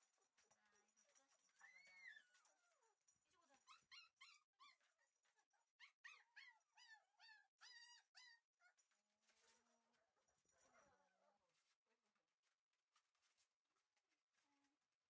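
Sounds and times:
puppy whining: 3.6s - 5.1s, 5.8s - 8.8s.

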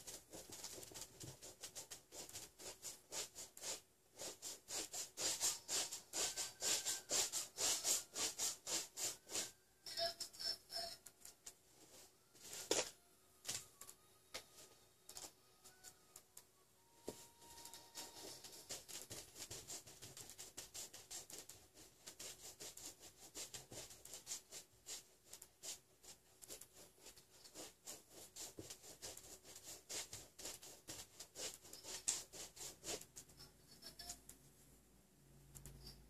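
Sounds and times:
paintbrush scrubbing canvas: 0.0s - 9.6s, 17.1s - 33.5s.

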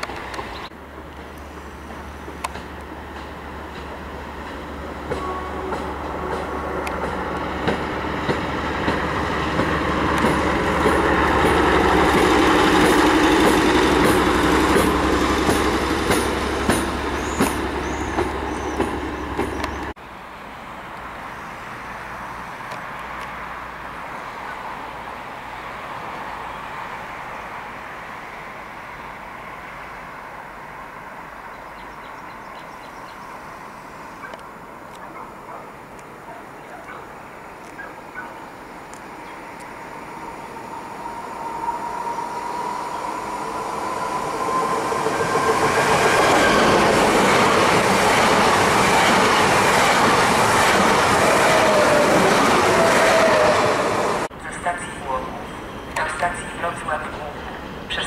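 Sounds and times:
wheels clicking over rail joints: 0.0s - 19.9s
rail trolley running noise: 0.0s - 58.0s.

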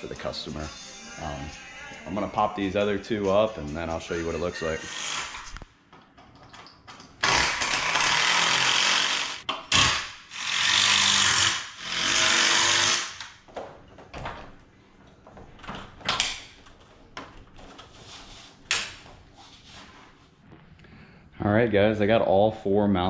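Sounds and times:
power drill driving screws: 4.8s - 5.6s, 7.2s - 13.4s.

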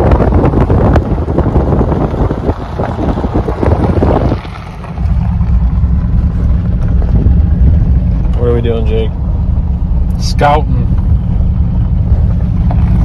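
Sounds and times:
truck driving rumble: 0.0s - 13.0s
wind buffeting microphone: 0.0s - 13.0s.

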